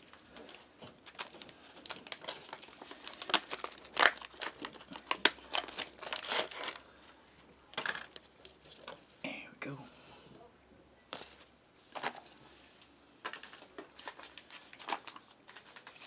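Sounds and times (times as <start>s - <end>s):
foil packet tearing and crinkling: 0.0s - 7.1s, 13.2s - 16.0s.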